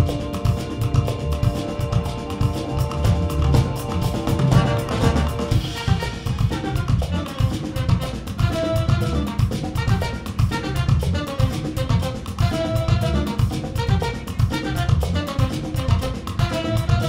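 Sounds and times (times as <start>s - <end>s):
drum kit beat: 0.0s - 17.0s
live band playing: 0.0s - 17.0s
trumpet lead line: 0.0s - 17.0s.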